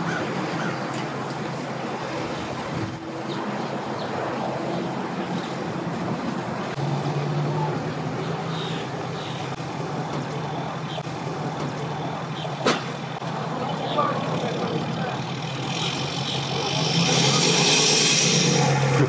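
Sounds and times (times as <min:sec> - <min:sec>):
outdoor background noise: 0:00.0 - 0:19.0
vehicle engine running: 0:04.6 - 0:19.0.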